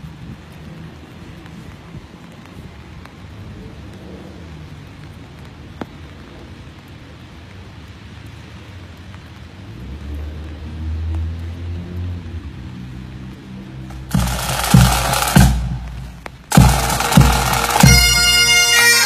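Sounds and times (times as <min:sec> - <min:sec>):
wind rumble: 0:00.0 - 0:18.4
distant traffic: 0:00.0 - 0:19.0
loud low drone: 0:13.9 - 0:18.4.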